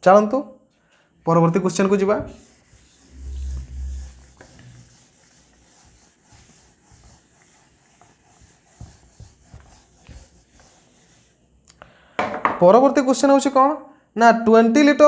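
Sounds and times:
eraser wiping whiteboard: 1.6s - 11.5s.

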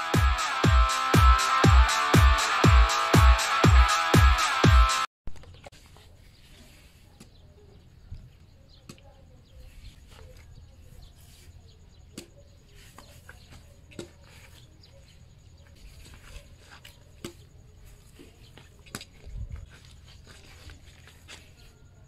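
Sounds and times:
bird chirps: 5.3s - 18.7s.

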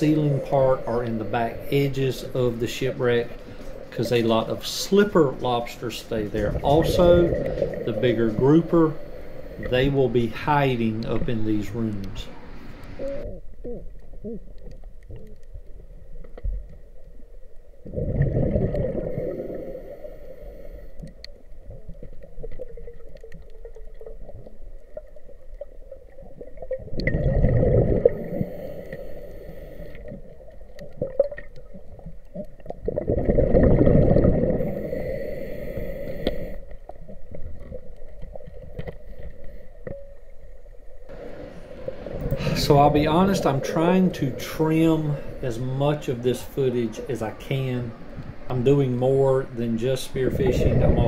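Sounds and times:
diver's breath bubbling underwater: 17.9s - 20.8s, 26.8s - 30.1s, 32.8s - 36.6s, 41.9s - 42.9s.

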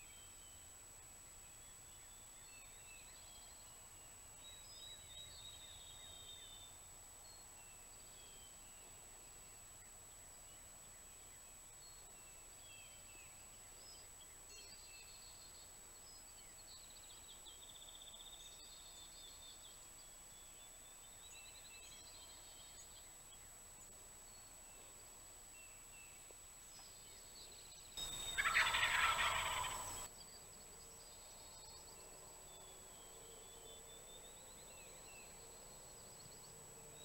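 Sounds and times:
faint songbirds singing: 0.0s - 37.0s
turkey gobbling: 28.0s - 30.1s.

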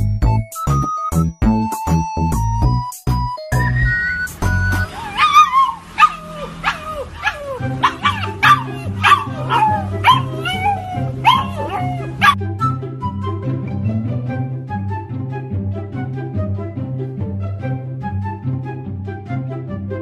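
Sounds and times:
background music: 0.0s - 20.0s
puppy howling: 4.8s - 12.4s.

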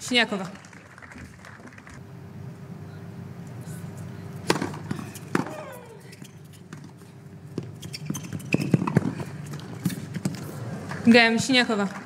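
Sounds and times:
racket hitting tennis ball: 4.4s - 5.9s
ball bouncing on hard court: 6.7s - 10.4s.

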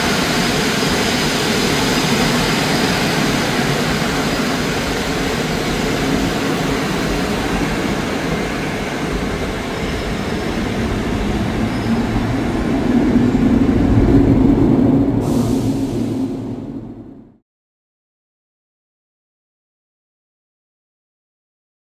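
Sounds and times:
train wheels rumbling on rails: 0.0s - 17.4s
low hum: 9.4s - 17.4s.

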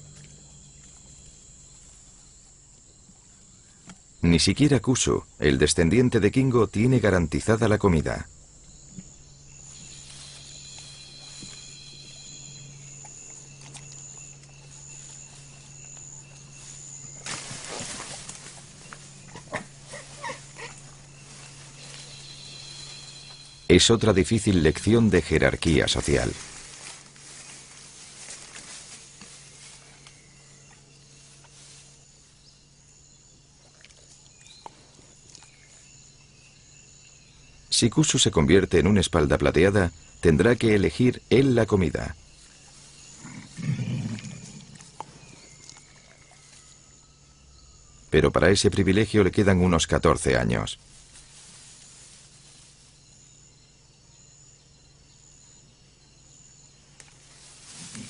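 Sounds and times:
insects droning: 0.0s - 58.0s
low hiss: 13.7s - 58.0s.

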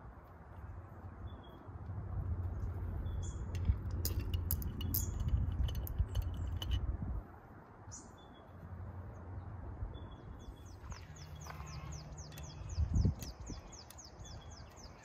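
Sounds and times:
birds chirping: 2.9s - 3.8s, 7.9s - 15.0s
metal clinks and taps: 3.5s - 6.9s.

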